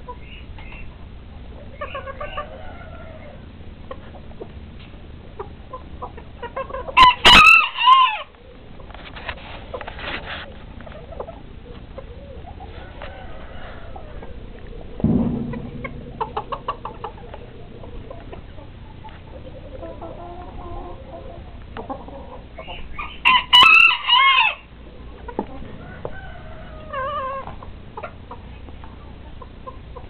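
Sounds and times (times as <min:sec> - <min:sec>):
chickens clucking: 0:00.0 - 0:30.0
rooster crowing: 0:02.2 - 0:03.4, 0:07.0 - 0:08.3, 0:12.6 - 0:14.4, 0:23.2 - 0:24.7, 0:25.7 - 0:27.5.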